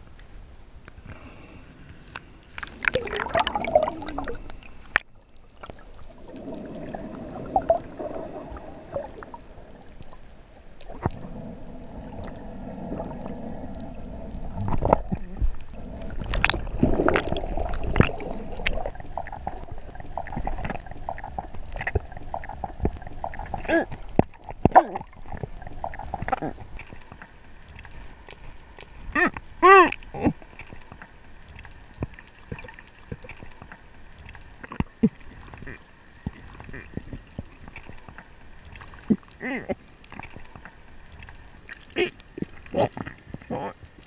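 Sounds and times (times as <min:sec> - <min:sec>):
steady hum: 0:00.0 - 0:29.1
muffled rushing water underwater: 0:00.0 - 0:44.0.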